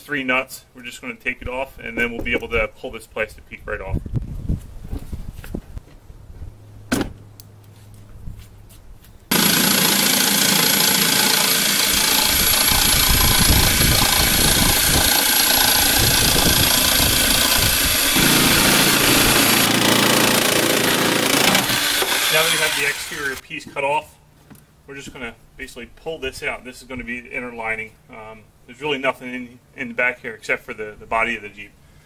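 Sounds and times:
power tool cutting plastic: 9.3 - 23.4.

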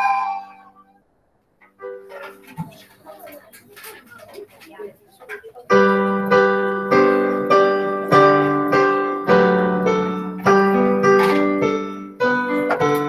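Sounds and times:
slow piano chords: 5.8 - 13.0.

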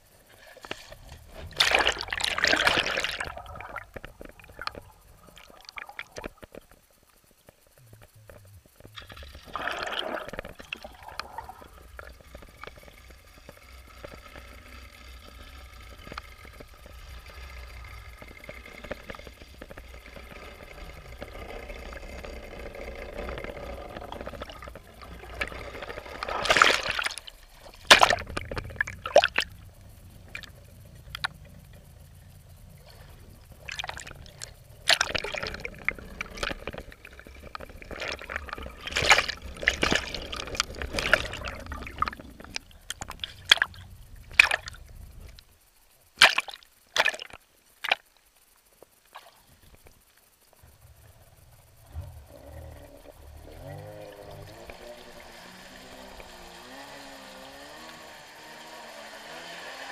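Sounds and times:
water sloshing and splashing: 0.0 - 6.9, 8.6 - 45.4, 46.2 - 48.2
low steady rumble: 0.0 - 59.9.

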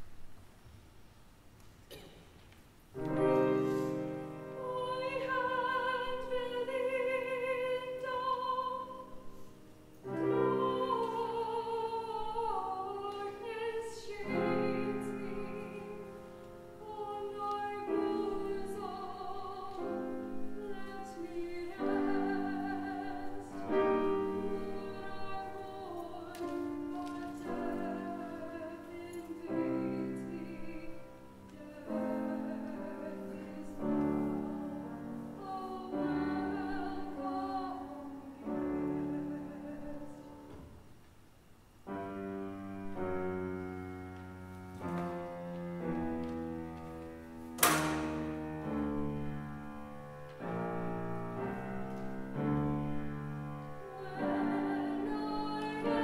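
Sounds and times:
grand piano: 0.0 - 56.0
soprano singing with vibrato: 3.0 - 40.6, 52.4 - 56.0.

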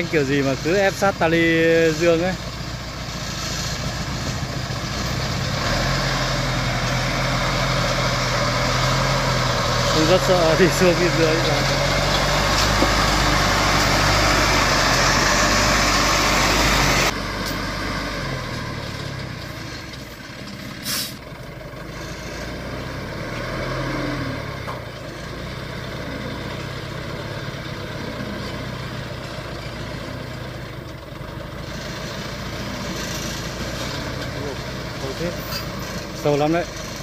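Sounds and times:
truck engine running: 0.0 - 37.0
brief sharp hiss: 20.8 - 21.2.

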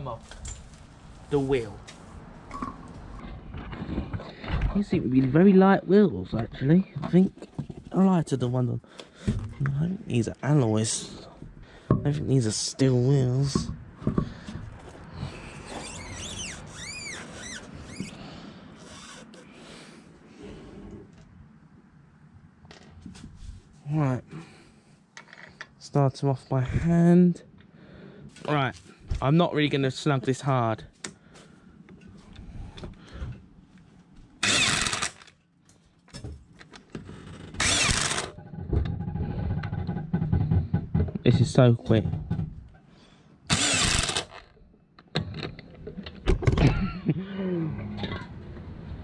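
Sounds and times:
short high squeaks: 15.6 - 18.2, 18.8 - 19.5
wheel rubbing against hub: 15.6 - 18.2, 18.8 - 19.5
impact wrench bursts: 18.8 - 19.4, 34.4 - 35.3, 37.4 - 38.3, 43.5 - 44.5.

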